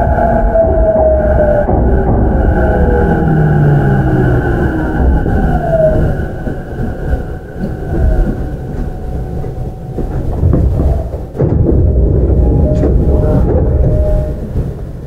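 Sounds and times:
electric train motor whine: 0.0s - 15.0s
train wheels rumbling on rail: 0.0s - 15.0s.

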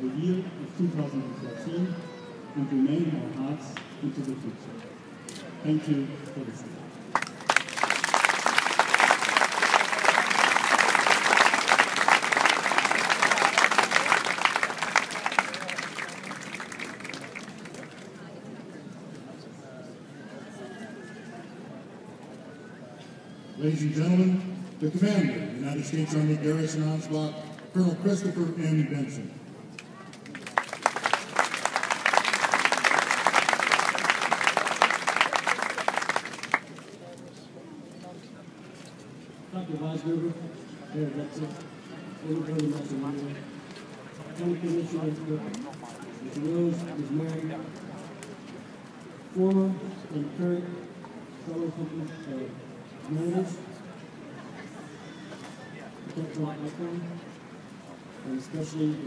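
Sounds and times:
audience applauding: 7.2s - 18.2s, 30.2s - 36.8s.

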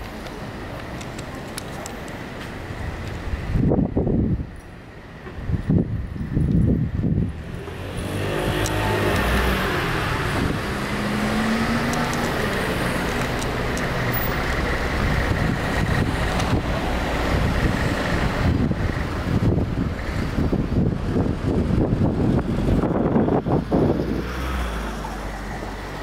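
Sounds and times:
car driving past: 7.5s - 13.0s.

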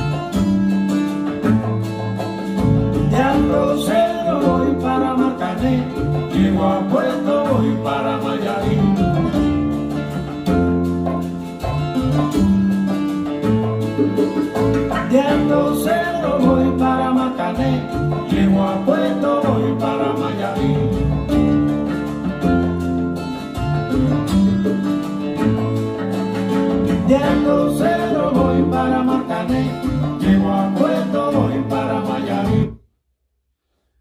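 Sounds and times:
song over loudspeakers: 15.0s - 21.2s.

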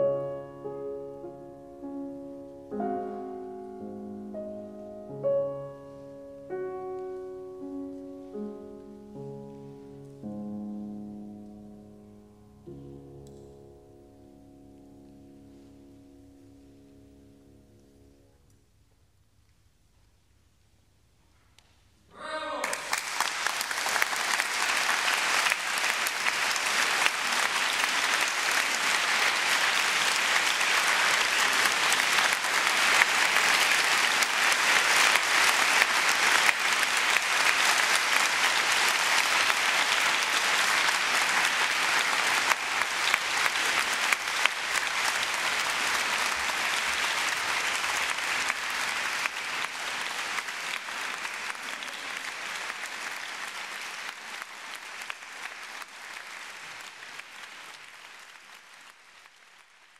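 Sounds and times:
audience applauding: 22.6s - 59.9s.

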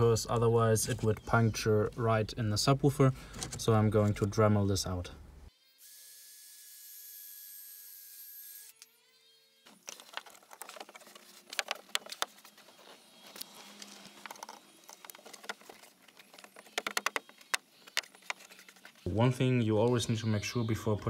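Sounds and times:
plastic trim clicks and rustles: 9.8s - 12.6s, 13.2s - 19.0s.

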